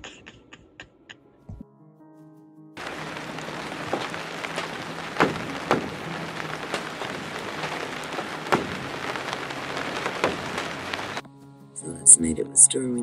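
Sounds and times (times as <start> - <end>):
loud raindrops striking close: 2.8 - 11.2
steady rain falling: 2.8 - 11.2.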